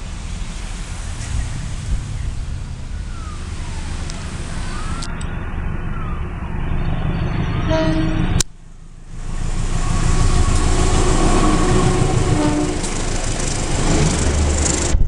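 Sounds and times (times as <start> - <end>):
wind rumbling on microphone: 0.0 - 8.4, 9.0 - 15.0
diesel locomotive rumble: 0.0 - 15.0
faint siren-like wailing: 2.8 - 8.2, 9.2 - 13.0.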